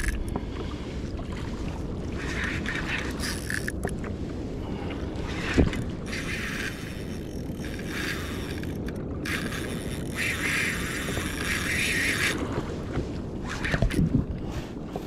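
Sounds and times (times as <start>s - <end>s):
wind on microphone: 0.0s - 15.0s
water slapping against kayak hull: 5.1s - 6.6s, 10.2s - 15.0s.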